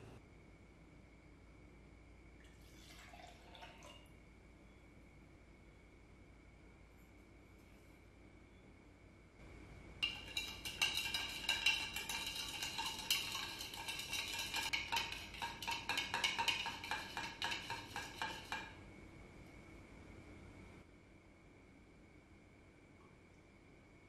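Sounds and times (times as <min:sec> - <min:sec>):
metal spoon clinking in a cup: 0:10.0 - 0:18.8.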